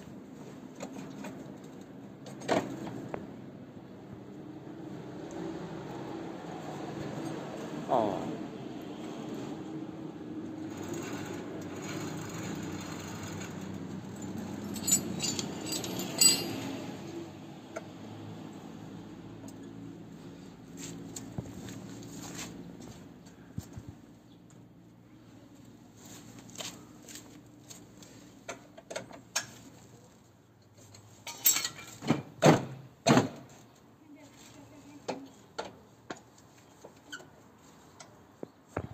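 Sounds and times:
metal clatter: 10.8 - 17.0
metal tools clinking: 14.0 - 17.0, 31.2 - 32.0.

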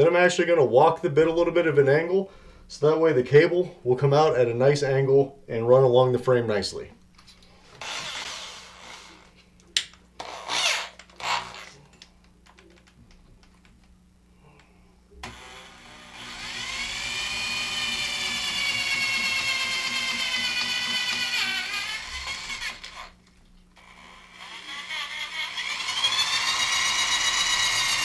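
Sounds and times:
power drill drilling into metal: 7.8 - 9.2, 10.2 - 11.7, 15.2 - 23.2, 23.8 - 28.0.

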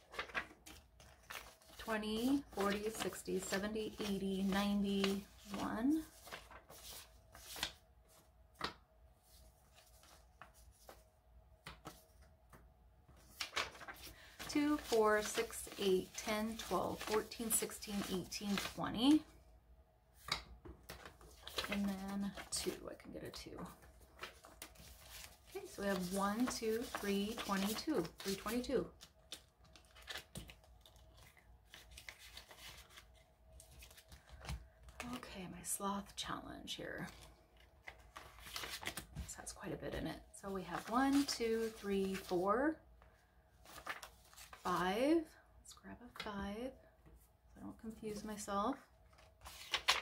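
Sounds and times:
paper bills rustling: 0.0 - 8.2, 13.1 - 19.2, 20.8 - 22.9, 23.6 - 35.0, 37.0 - 39.2, 40.7 - 42.4, 43.6 - 44.8, 49.1 - 50.0
page turning: 0.0 - 19.2, 20.2 - 22.9, 23.6 - 35.0, 37.8 - 39.3, 43.6 - 44.8, 49.1 - 50.0.

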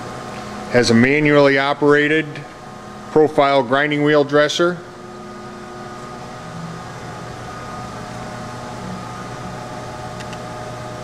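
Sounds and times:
background hum and hiss: 0.0 - 11.0
faint steady tones: 1.0 - 11.0.

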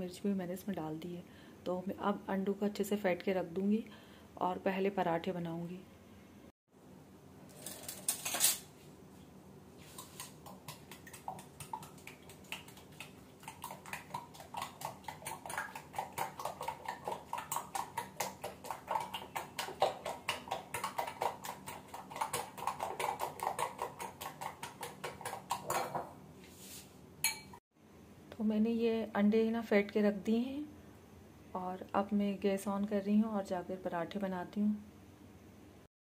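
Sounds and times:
spoon clinking against glass bowl: 27.2 - 27.6.

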